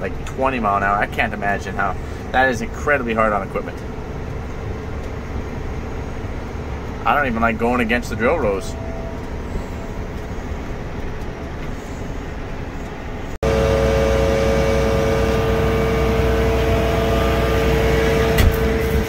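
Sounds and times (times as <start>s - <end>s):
farm machinery drone with whine: 0.0s - 19.0s
tractor running inside cab: 0.0s - 19.0s.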